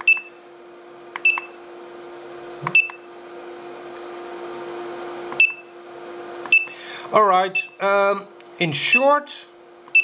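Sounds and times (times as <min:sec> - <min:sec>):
charger beeping: 0:00.0 - 0:00.4, 0:01.2 - 0:01.6, 0:02.7 - 0:03.1, 0:05.4 - 0:05.7, 0:06.5 - 0:06.8, 0:08.8 - 0:09.2.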